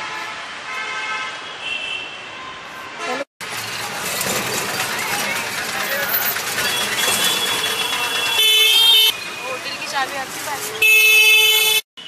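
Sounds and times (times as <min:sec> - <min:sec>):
vehicle horns tooting: 0:00.0 - 0:03.3, 0:06.5 - 0:12.0
road and engine noise: 0:00.0 - 0:12.0
street traffic: 0:00.0 - 0:12.0.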